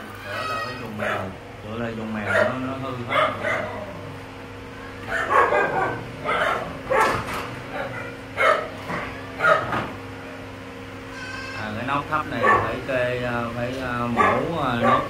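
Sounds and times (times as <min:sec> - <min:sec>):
dog barking: 0:01.0 - 0:01.4, 0:02.2 - 0:03.8, 0:05.0 - 0:09.9, 0:12.4 - 0:12.8, 0:14.1 - 0:15.0.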